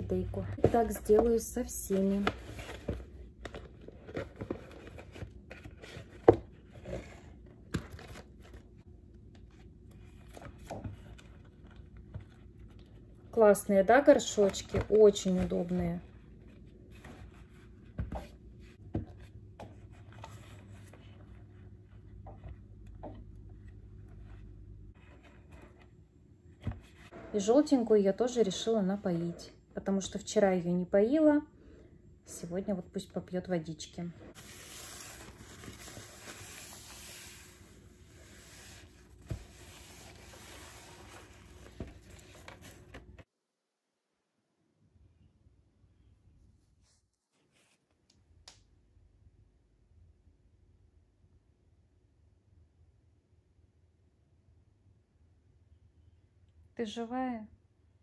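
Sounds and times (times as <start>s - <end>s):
soft scratching and rustling: 46.6s - 48.0s.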